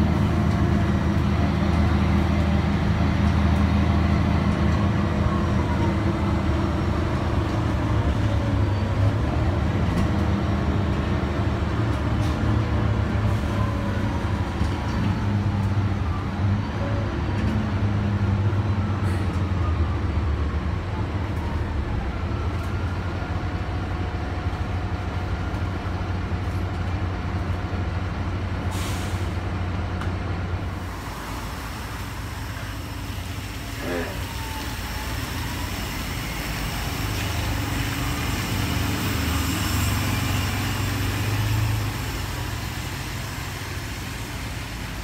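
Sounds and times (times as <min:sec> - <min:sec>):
bus engine droning: 0:00.0 - 0:45.0
air hiss from bus: 0:28.7 - 0:29.4, 0:30.7 - 0:45.0.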